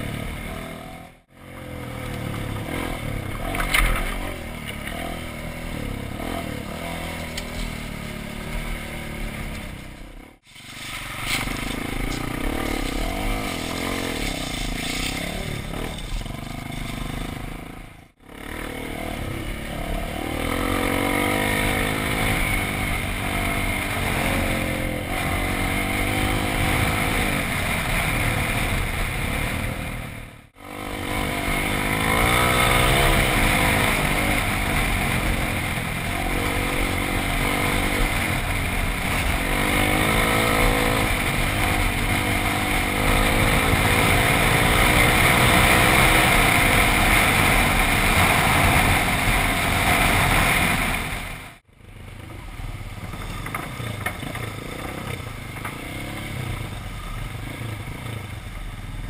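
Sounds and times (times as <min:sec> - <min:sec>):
dirt bike engines revving: 0:00.0 - 0:59.0
steady rush of noise: 0:04.2 - 0:59.0.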